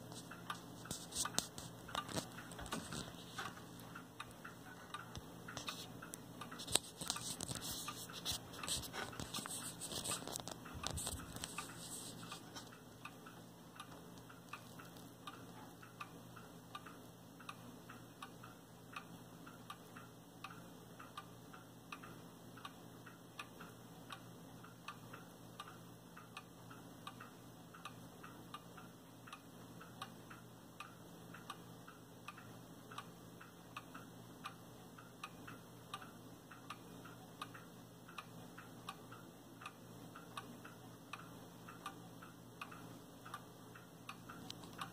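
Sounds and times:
clock ticking: 0.0s - 44.9s.

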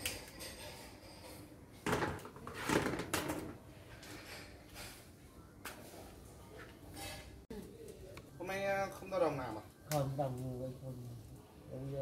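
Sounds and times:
plastic basins knocking on concrete: 1.8s - 3.6s.

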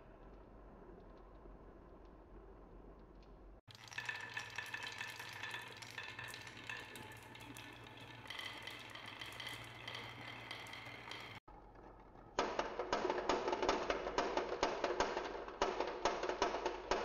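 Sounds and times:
marbles clicking and clinking: 3.7s - 11.4s
marbles rolling on wooden tracks: 3.7s - 11.4s.

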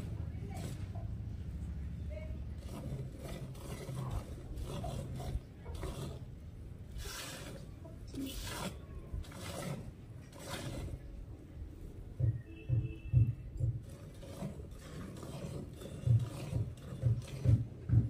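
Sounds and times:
milk squirting into steel pail: 13.7s - 17.8s.

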